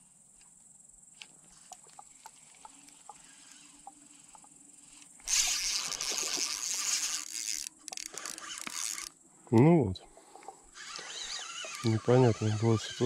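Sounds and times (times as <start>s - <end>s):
high insect buzz: 0.0s - 13.0s.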